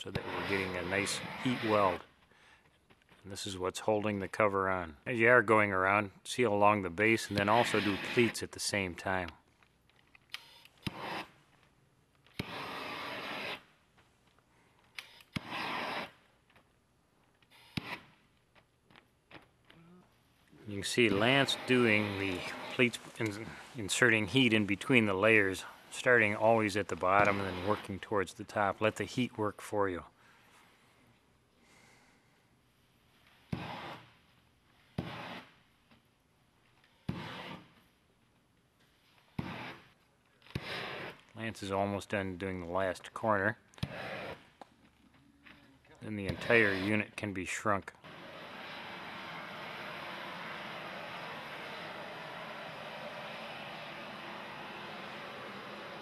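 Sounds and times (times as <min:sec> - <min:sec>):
propane heat tool blasts: 0:00.0 - 0:02.1, 0:07.0 - 0:08.4, 0:10.8 - 0:11.3, 0:12.4 - 0:13.7, 0:15.4 - 0:16.2, 0:20.6 - 0:28.8, 0:33.5 - 0:34.1, 0:35.0 - 0:35.6, 0:40.5 - 0:41.2, 0:43.8 - 0:44.5, 0:46.3 - 0:47.1, 0:48.0 - 0:56.0
heat gun whooshes: 0:00.2 - 0:02.0, 0:12.4 - 0:13.6, 0:20.8 - 0:28.0.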